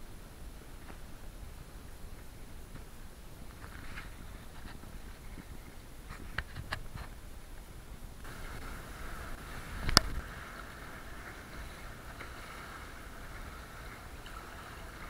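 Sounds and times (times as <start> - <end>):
water slapping against kayak hull: 8.3 - 15.0.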